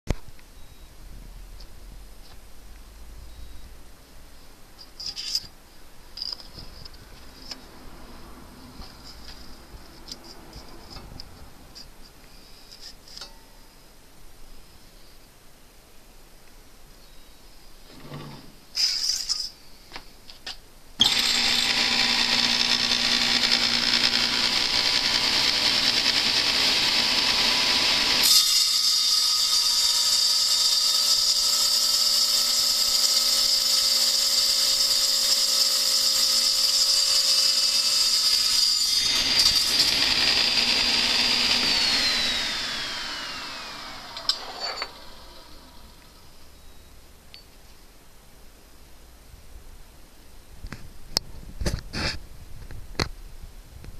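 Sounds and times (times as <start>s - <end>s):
circular saw whining: 21.0s - 46.6s.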